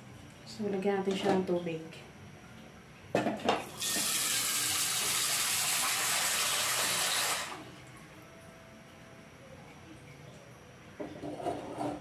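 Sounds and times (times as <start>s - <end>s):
water running from a tap: 3.8s - 7.6s.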